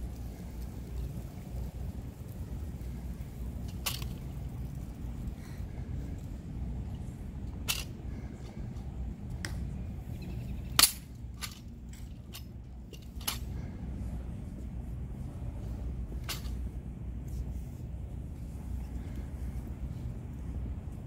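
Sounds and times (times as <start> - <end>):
low steady rumble: 0.0 - 21.0
rifle metal parts clicking: 3.7 - 4.3, 7.6 - 8.0, 10.7 - 13.5.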